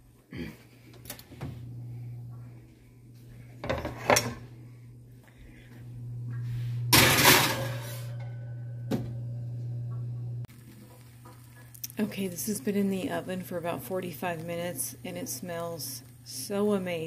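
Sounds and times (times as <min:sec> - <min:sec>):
steady low hum: 0:00.1 - 0:17.0
glass dish sliding on oven rack: 0:06.9 - 0:08.5.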